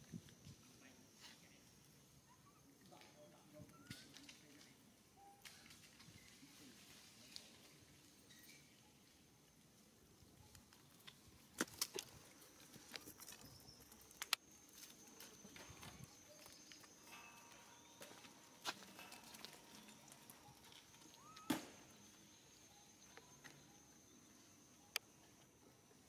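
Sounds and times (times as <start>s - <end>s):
faint high-pitched tone: 14.8s - 25.4s.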